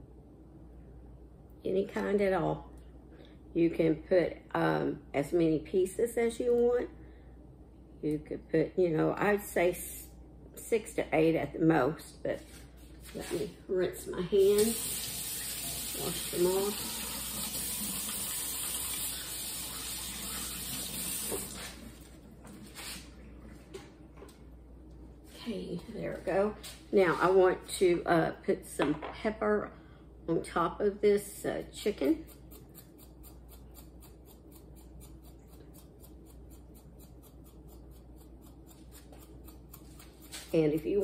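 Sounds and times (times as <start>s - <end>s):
kitchen faucet running: 14.4s - 22.0s.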